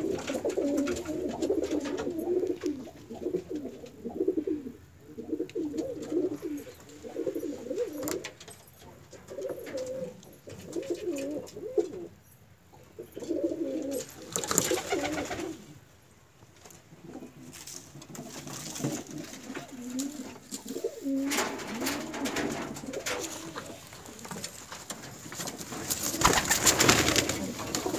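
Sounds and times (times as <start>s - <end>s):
pigeons cooing: 0.0s - 8.4s, 9.2s - 15.9s, 18.2s - 27.9s
rustling: 16.4s - 27.9s.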